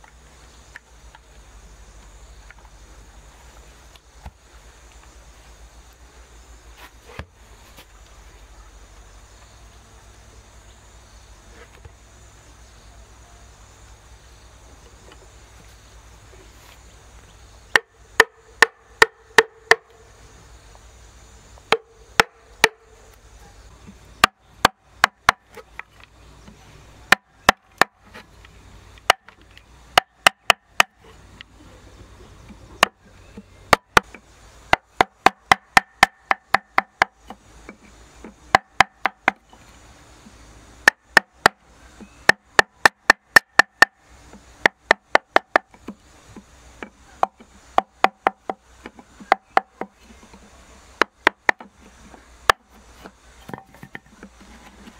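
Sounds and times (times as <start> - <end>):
wood striking steel chisel: 17.8 - 20.0, 21.7 - 23.0, 33.7 - 39.5, 51.0 - 54.9.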